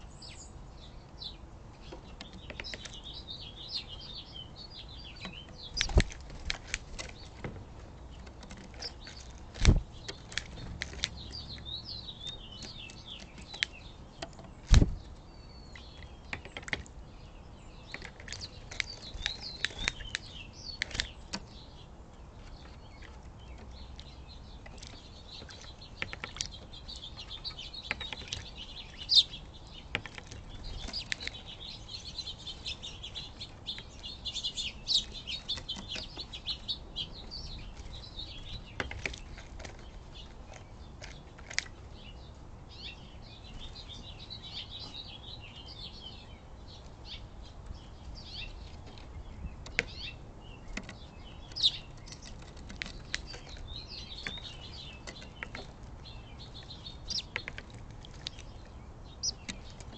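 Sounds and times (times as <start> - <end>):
birds chirping: 0.0 - 59.9.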